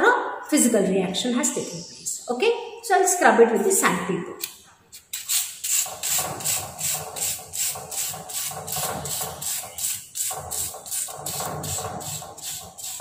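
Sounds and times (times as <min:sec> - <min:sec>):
sandpaper rubbing metal: 0:05.0 - 0:13.0.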